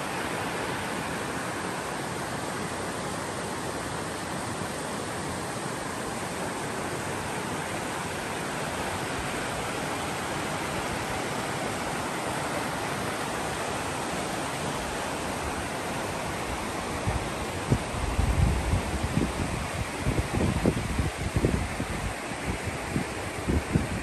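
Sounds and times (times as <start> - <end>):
creek rushing over rocks: 0.0 - 24.0.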